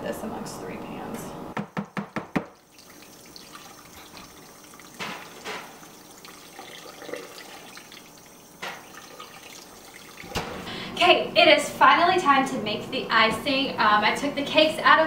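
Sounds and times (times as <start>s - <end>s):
knocks: 1.6s - 2.5s.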